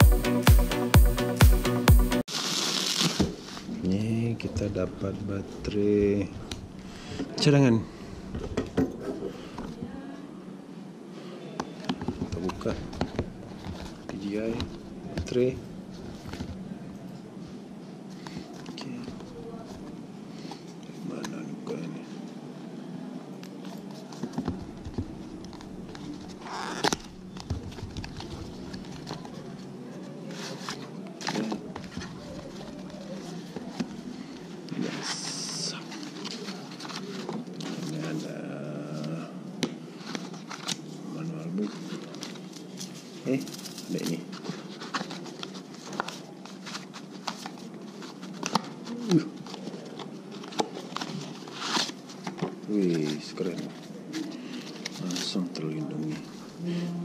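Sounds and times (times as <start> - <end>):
cardboard scraping rustle: 2.3 - 3.7.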